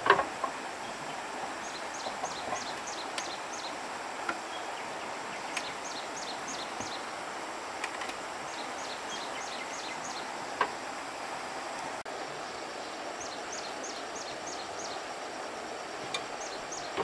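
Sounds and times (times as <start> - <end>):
songbird calling: 0.0 - 7.2, 7.8 - 10.8, 12.6 - 17.0
background hiss: 0.0 - 17.0
faint sharp clicks: 5.5 - 5.7.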